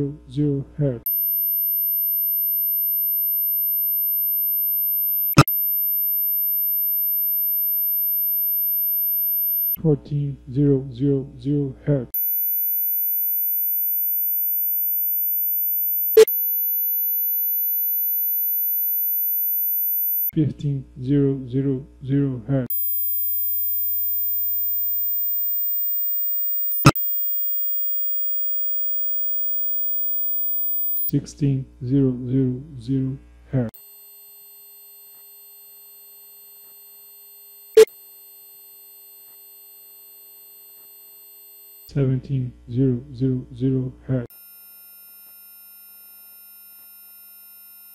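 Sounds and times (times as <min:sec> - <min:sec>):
high sine test tone: 0:01.1 - 0:09.8, 0:12.2 - 0:20.3, 0:22.7 - 0:31.2, 0:33.8 - 0:41.9, 0:44.3 - 0:47.9.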